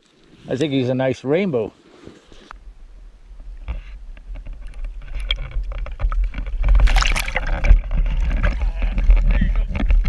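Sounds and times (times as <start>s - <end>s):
wind rumble on microphone: 3.4s - 10.0s
water splashing: 5.2s - 8.6s
fish thrashing in water: 5.2s - 9.2s.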